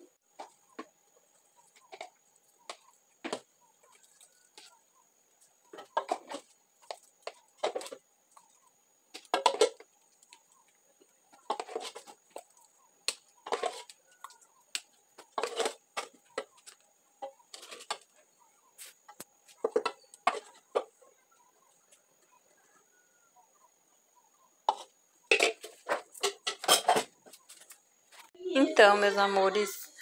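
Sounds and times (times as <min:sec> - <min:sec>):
mug scraping metal saucepan: 0:11.4 - 0:12.2, 0:13.4 - 0:13.9, 0:15.3 - 0:16.5, 0:24.7 - 0:27.1.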